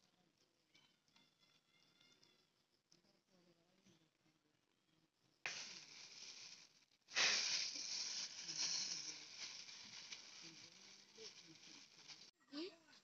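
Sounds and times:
plastic bag crinkling: 5.5 - 12.3.

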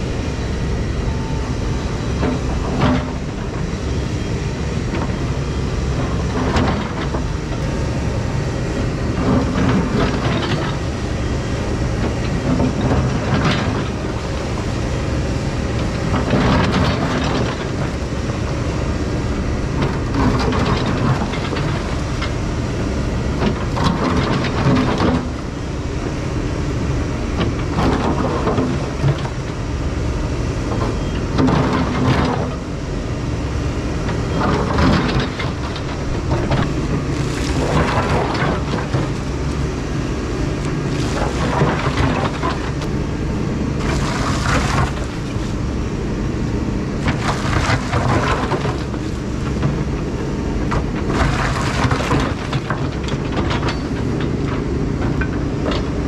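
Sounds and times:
excavator diesel engine under load: 0.0 - 56.0.

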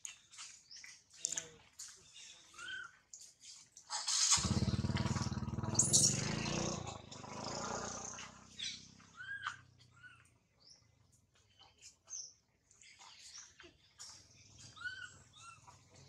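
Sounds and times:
baby monkey squeaking: 2.5 - 2.9, 5.7 - 6.4, 8.6 - 10.3, 14.6 - 15.9
motorcycle engine running: 4.3 - 11.0.

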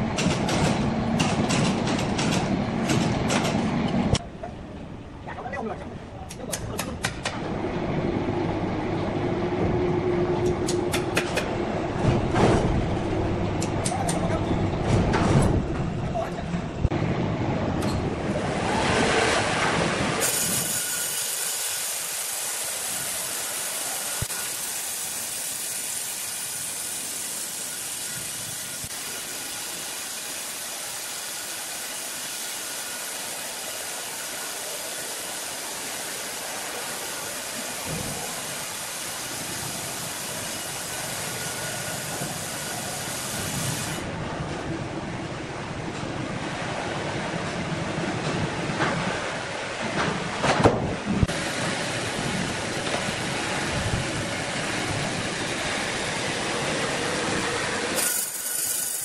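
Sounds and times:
band saw cutting log: 20.2 - 38.1, 57.8 - 59.0.

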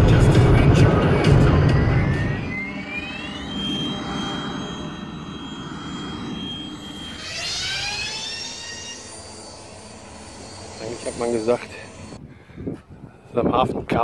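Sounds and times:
rising whoosh: 0.0 - 12.3
spaceship engine whine: 0.0 - 12.3
low rumble: 0.0 - 12.4.

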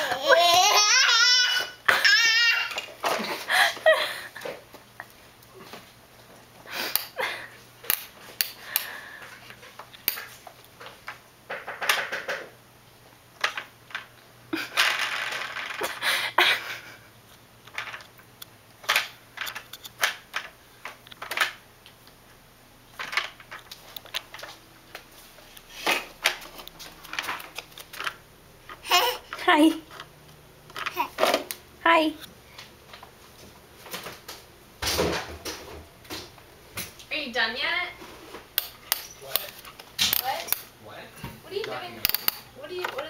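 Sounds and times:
plastic toy car rolling on wood: 14.7 - 16.0.

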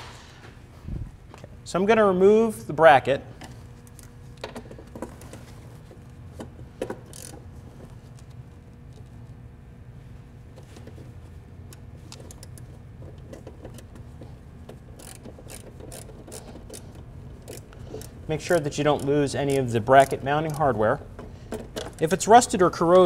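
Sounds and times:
steady low hum: 0.0 - 23.0
hand tools clicking on metal: 15.0 - 20.8.

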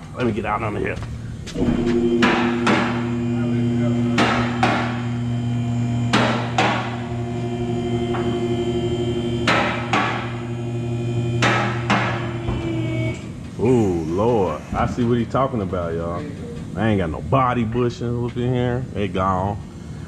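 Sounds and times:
low electrical hum: 0.0 - 20.0
hammer blows on metal: 1.6 - 3.4, 4.0 - 5.2.

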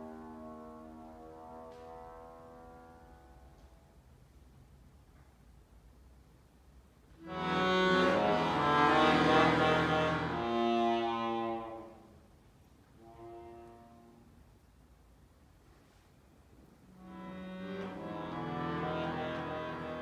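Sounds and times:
accordion chords: 7.2 - 12.1, 16.9 - 20.0.

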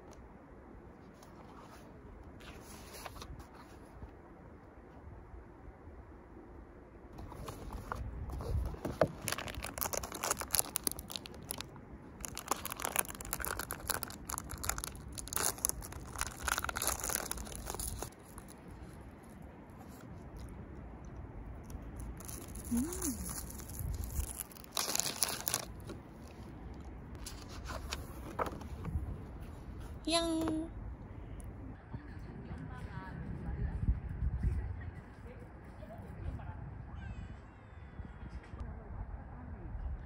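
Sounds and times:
plastic wrapper crinkling: 7.2 - 19.1, 21.7 - 28.6.

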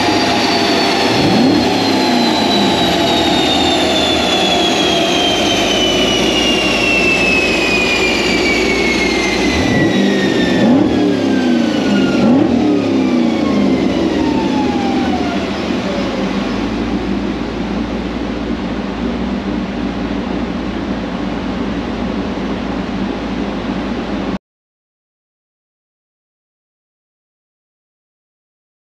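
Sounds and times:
dyno rollers whining down: 0.0 - 24.4
engine revs: 0.0 - 24.4
engine running: 0.0 - 24.4.

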